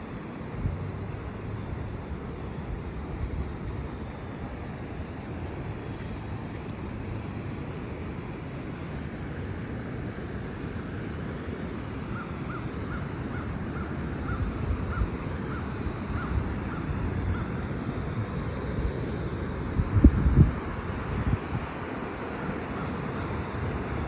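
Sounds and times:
water rushing over falls: 0:00.0 - 0:24.0
bird calling: 0:12.0 - 0:17.8, 0:22.3 - 0:23.6.

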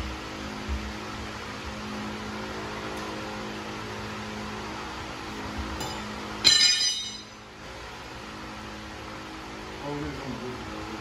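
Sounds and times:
steady low hum: 0:00.0 - 0:11.0
tire iron clanging: 0:05.7 - 0:07.4.

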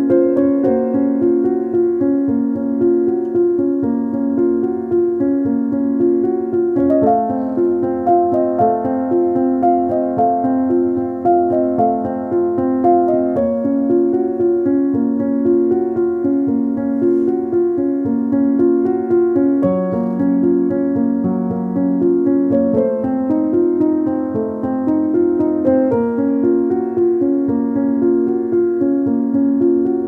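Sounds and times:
gentle piano music: 0:00.0 - 0:30.0.

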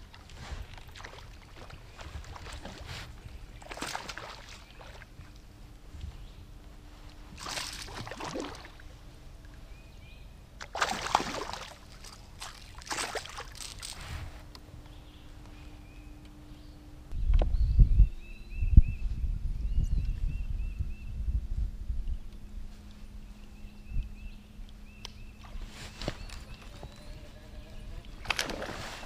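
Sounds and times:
fish splashing in water: 0:03.6 - 0:05.1, 0:10.6 - 0:13.9.

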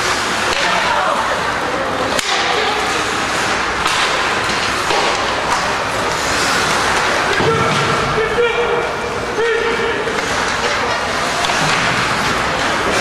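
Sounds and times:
arena noise: 0:00.0 - 0:13.0
sharp crack: 0:03.8 - 0:05.7.

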